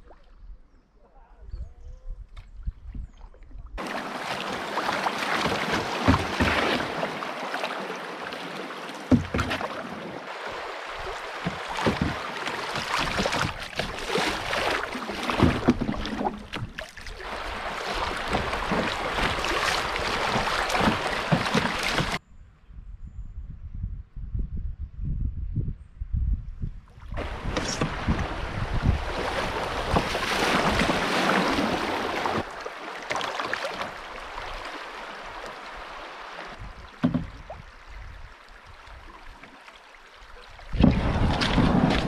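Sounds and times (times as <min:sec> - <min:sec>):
canoe splashes and knocks: 0:03.8 - 0:22.2, 0:27.2 - 0:38.3, 0:38.9 - 0:42.0
water rushing: 0:03.8 - 0:22.2, 0:27.2 - 0:42.0.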